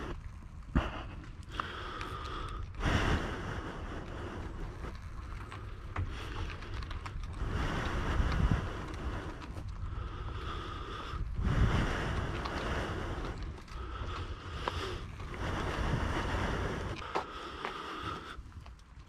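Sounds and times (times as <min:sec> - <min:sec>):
tyres rolling on asphalt: 0:00.0 - 0:19.0
wind buffeting microphone: 0:00.0 - 0:19.0.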